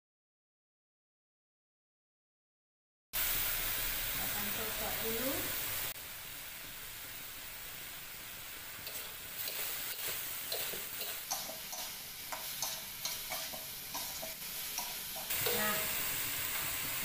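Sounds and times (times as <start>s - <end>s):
vegetables sizzling in a wok: 3.2s - 17.0s
metal spatula scraping a wok: 8.8s - 16.8s.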